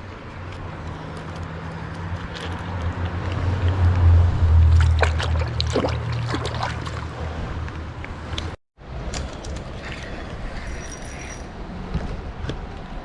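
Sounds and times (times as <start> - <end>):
low rumble: 3.3 - 7.6
water splashing: 4.4 - 7.7.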